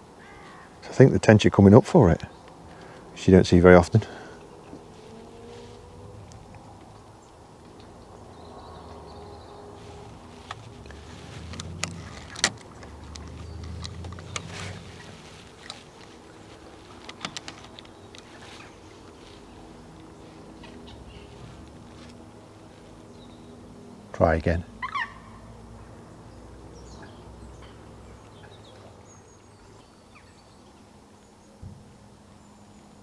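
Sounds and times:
low handling rumble: 0:02.0 - 0:24.8.

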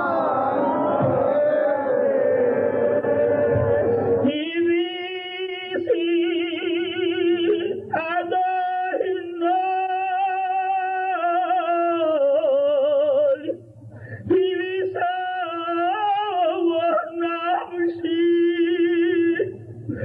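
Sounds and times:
crowd chanting: 0:00.0 - 0:04.4
person chanting a prayer: 0:02.4 - 0:13.6.

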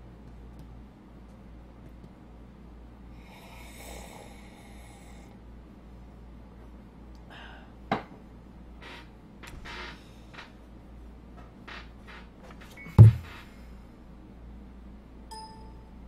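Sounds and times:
steady low hum: 0:00.0 - 0:15.3
soft breath near microphone: 0:03.1 - 0:05.4.

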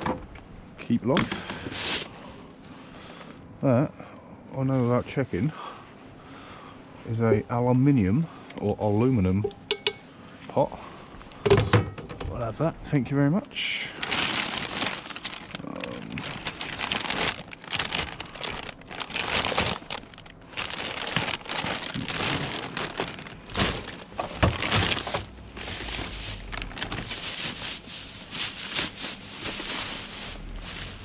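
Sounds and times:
plastic bags crinkling: 0:13.7 - 0:31.0.

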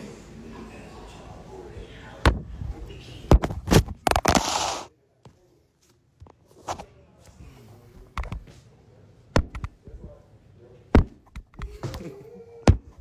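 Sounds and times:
faint murmur of voices: 0:00.0 - 0:03.5, 0:04.9 - 0:13.0.

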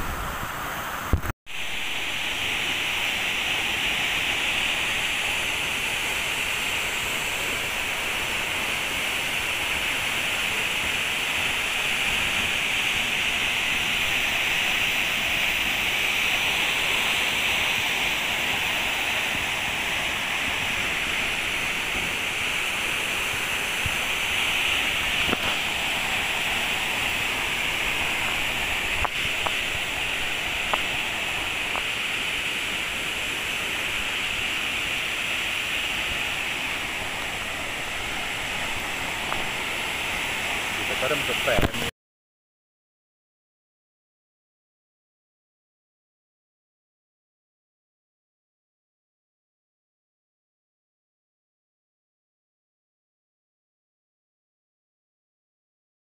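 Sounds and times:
waterfall crashing: 0:00.0 - 0:41.9.

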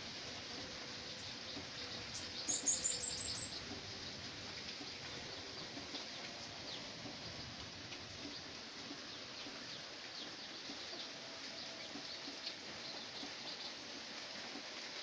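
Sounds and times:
steady background hiss: 0:00.0 - 0:15.0
small bird chirping: 0:02.1 - 0:03.7.

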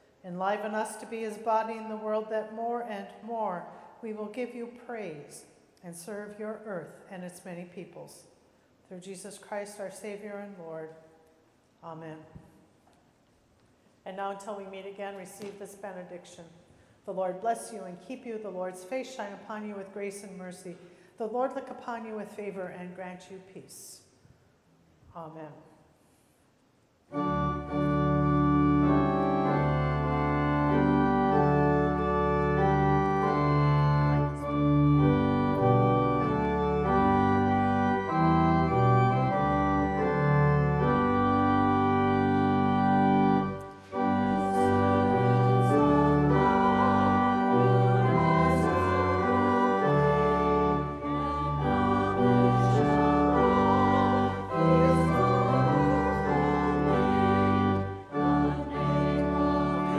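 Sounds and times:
church organ sustained chords: 0:27.1 - 0:59.9.

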